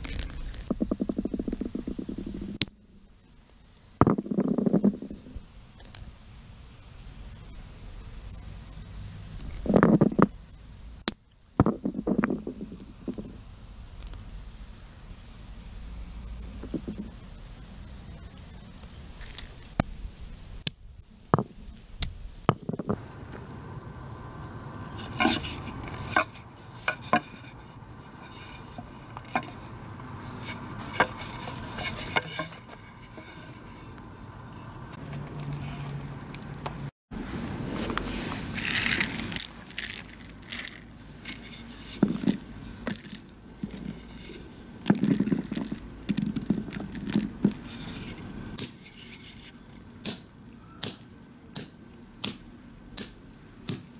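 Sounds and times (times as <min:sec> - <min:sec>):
wooden mallets cracking nut shells: 0:35.0 - 0:36.9, 0:38.6 - 0:41.4.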